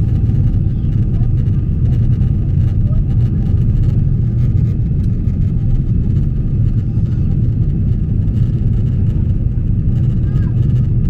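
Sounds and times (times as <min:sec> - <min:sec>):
jet airliner cabin rumble: 0:00.0 - 0:11.0.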